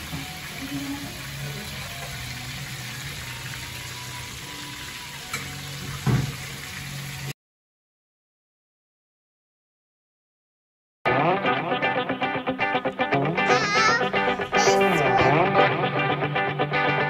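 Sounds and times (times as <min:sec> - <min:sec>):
meat sizzling in a frying pan: 0:00.0 - 0:07.3
thump: 0:06.0 - 0:06.4.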